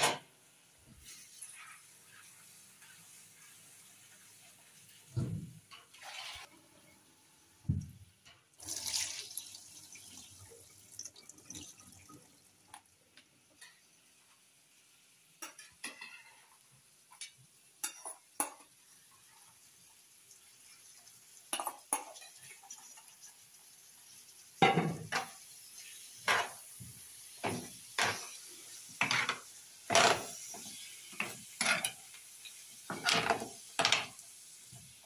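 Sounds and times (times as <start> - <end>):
tap water running into metal bowl: 8.6 - 12.9
metal bowls and spoon clinking: 17.1 - 18.7, 21.5 - 23.1, 31.2 - 34.2.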